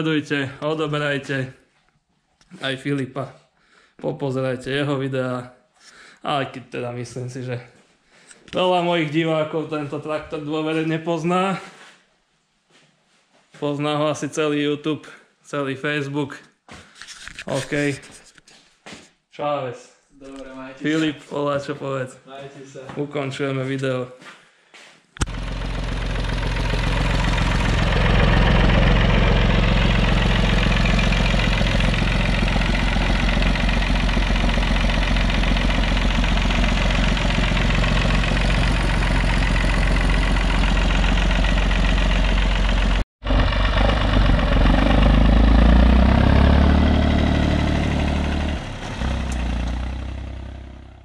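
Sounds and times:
engine revving: 25.2 - 51.0
tractor engine running: 25.2 - 51.0.

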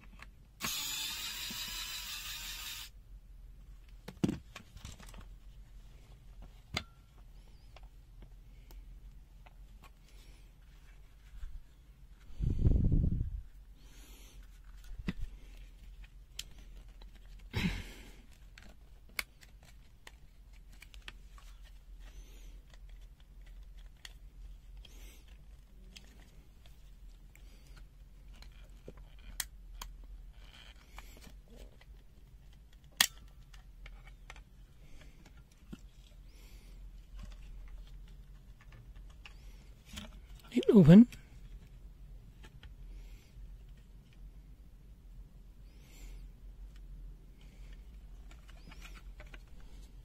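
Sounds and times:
small clicks and scrapes: 47.4 - 50.0.

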